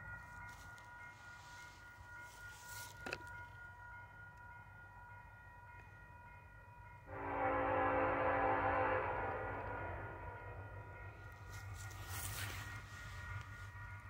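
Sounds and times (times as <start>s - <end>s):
distant freight train rumble: 0.0s - 14.0s
high-pitched tone: 7.1s - 13.2s.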